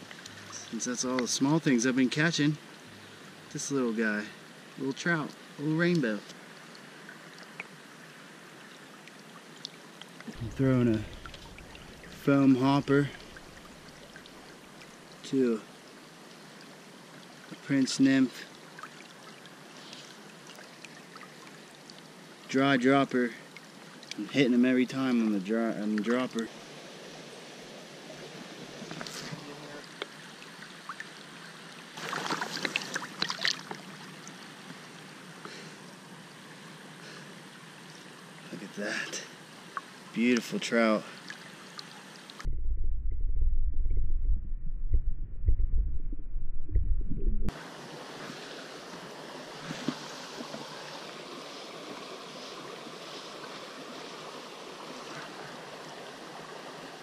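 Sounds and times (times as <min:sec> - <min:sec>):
stream water running: 0:00.0 - 0:42.5, 0:47.5 - 0:57.0
water splashing and dripping: 0:09.0 - 0:15.2, 0:32.0 - 0:34.4.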